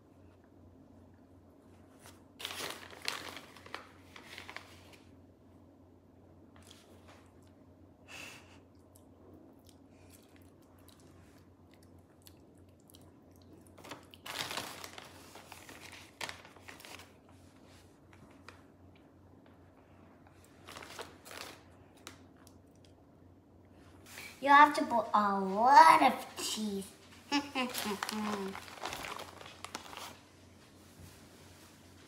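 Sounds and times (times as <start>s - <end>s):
plastic bag crinkling: 2.4s - 5.0s, 13.7s - 17.2s, 20.5s - 22.2s, 26.7s - 30.3s.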